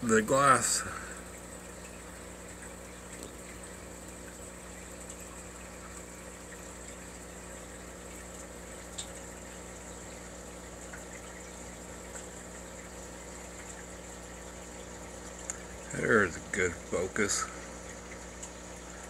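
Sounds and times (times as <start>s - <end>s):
faint watery hiss: 0.0s - 1.5s
aquarium pump humming: 0.0s - 19.0s.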